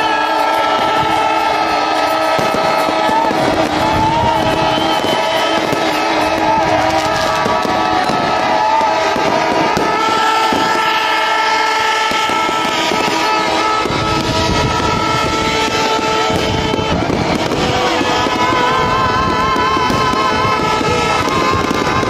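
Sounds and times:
fireworks crackling and popping: 0.0 - 22.0
held horn-like tones: 0.0 - 22.0.

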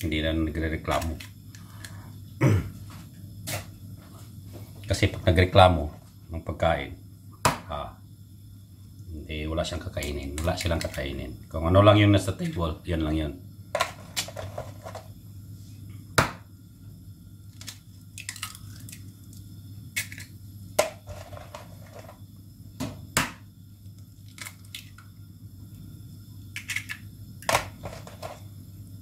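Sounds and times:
steady low hum: 0.0 - 29.0
utensils clicking on counter: 26.6 - 27.0.

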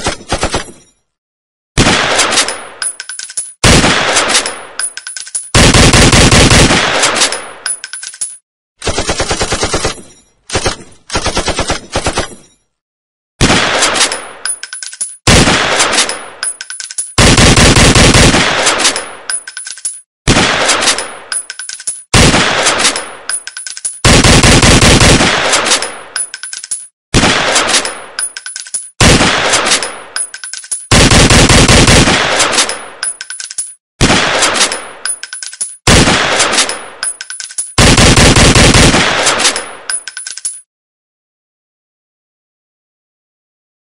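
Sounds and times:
automatic gunfire bursts: 5.6 - 7.2, 17.2 - 18.9, 24.0 - 25.7, 30.9 - 32.7, 37.8 - 39.6.

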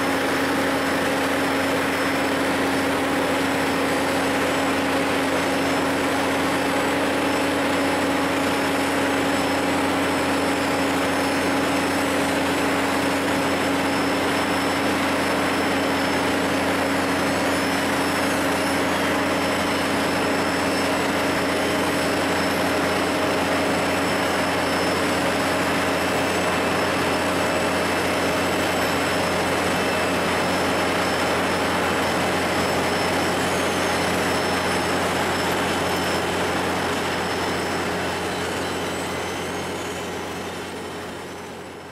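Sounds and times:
asphalt paver drone with whine: 0.0 - 41.9.

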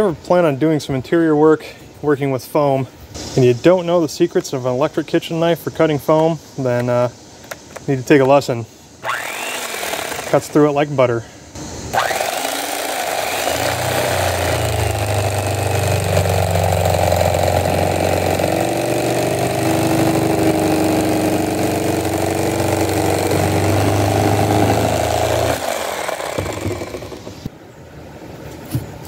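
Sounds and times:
electric knife sawing foam: 9.0 - 10.6, 11.9 - 27.4.

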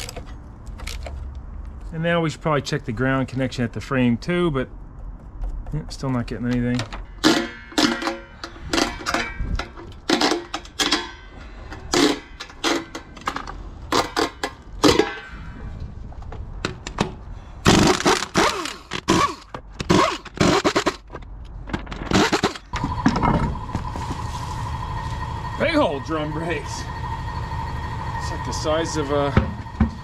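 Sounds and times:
metal tools clinking on car parts: 6.5 - 15.4.

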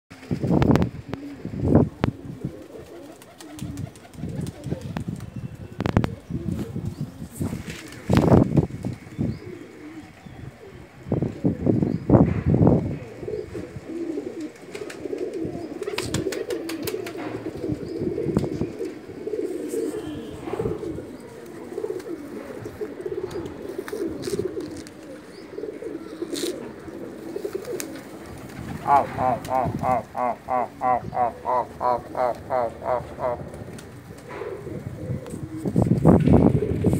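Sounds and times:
pigeons cooing: 0.2 - 36.9
wings flapping: 2.6 - 5.3, 7.4 - 9.0, 14.4 - 17.5, 21.3 - 25.3, 27.3 - 34.3
sharp clicks of wings and feet: 23.3 - 25.1.

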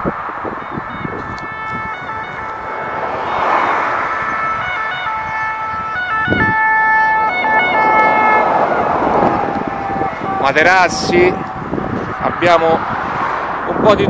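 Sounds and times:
cars passing: 0.0 - 14.0
electronic siren tones: 0.5 - 10.6.

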